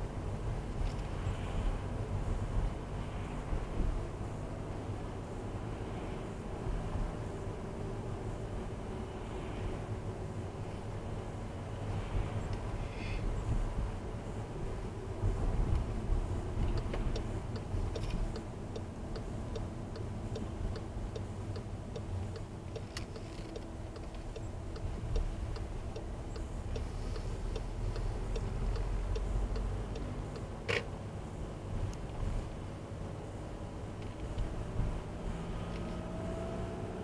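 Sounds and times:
engine and tyres on wet road: 0.0 - 37.0
turn signal indicator clicking: 16.7 - 30.8.

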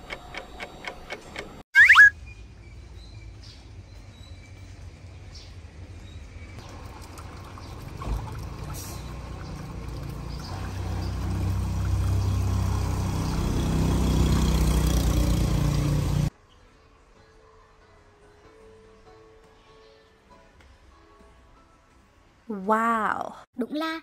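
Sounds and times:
water splashing into pond: 6.6 - 15.4.

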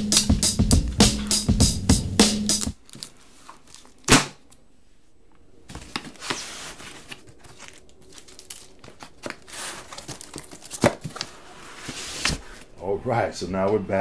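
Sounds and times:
paper and cardboard rustling: 2.8 - 4.1, 5.7 - 12.8.

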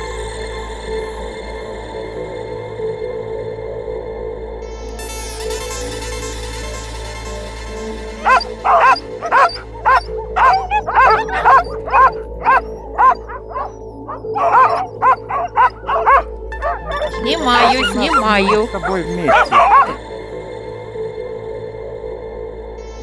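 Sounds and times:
background music: 0.0 - 23.0
sled dogs barking: 8.1 - 20.1.

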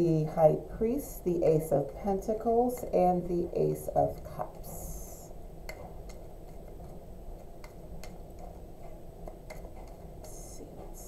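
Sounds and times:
low room hum: 0.0 - 11.0.

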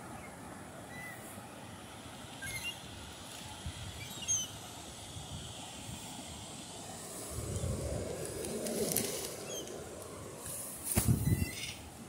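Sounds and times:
wind: 0.0 - 12.0
faint high bird calls: 0.1 - 1.3, 2.4 - 2.9, 4.0 - 4.6, 11.2 - 11.9.

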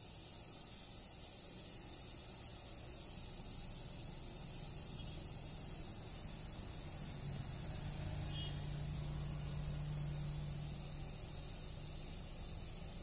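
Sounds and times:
high background hiss: 0.0 - 13.0
motorcycle engines humming: 4.0 - 13.0.

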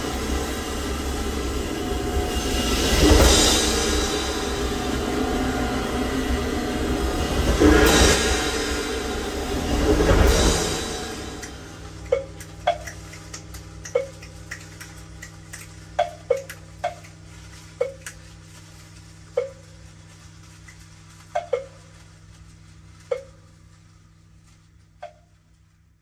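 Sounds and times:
low steady hum: 0.0 - 26.0
drop-like plinks: 12.1 - 15.4, 16.0 - 17.2, 17.8 - 18.2, 19.4 - 19.6.

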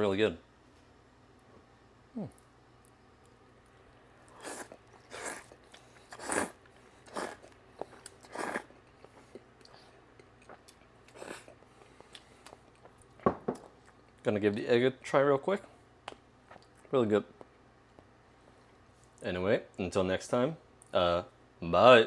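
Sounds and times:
person chewing and eating: 3.6 - 14.2.

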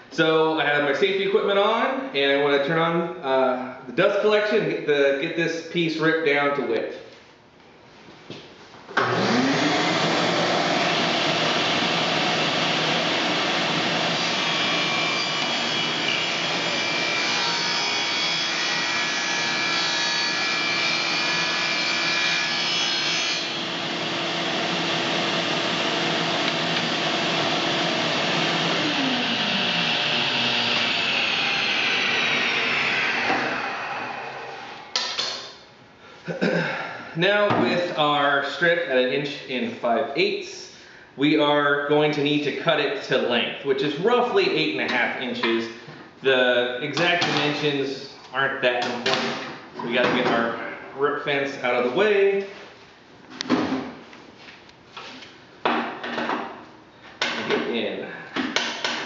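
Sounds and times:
table saw motor hum: 9.0 - 35.0
saw blade cutting wood: 13.6 - 25.7, 28.2 - 35.3.

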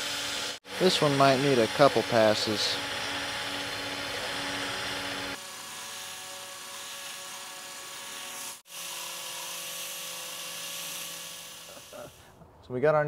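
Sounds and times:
cordless drill running: 0.0 - 12.2.

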